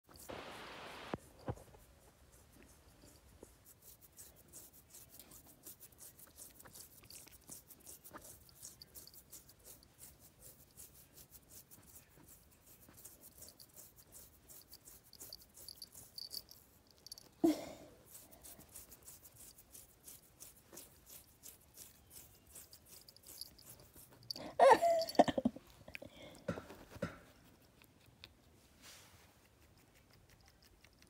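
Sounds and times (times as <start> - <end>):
fingernails scratching fur: 0.1 - 17.2, 18.1 - 24.4.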